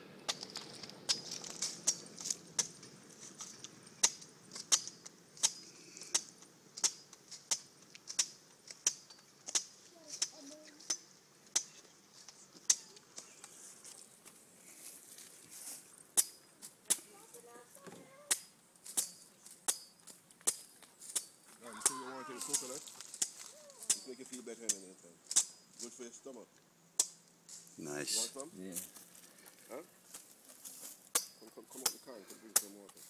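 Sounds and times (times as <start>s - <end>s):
machete chopping coconut husk: 3.5s - 11.8s, 18.3s - 25.6s, 27.0s - 27.2s, 31.1s - 32.9s.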